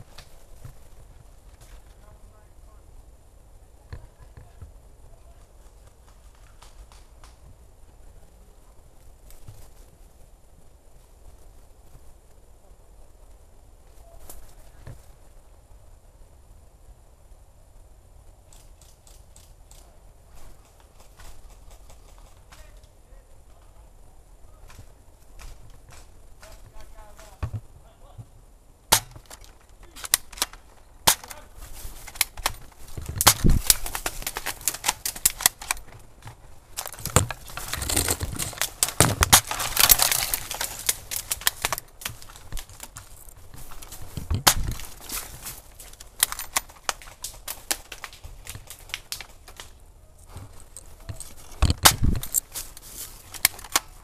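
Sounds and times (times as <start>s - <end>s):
rustling brush: 29.2s - 54.0s.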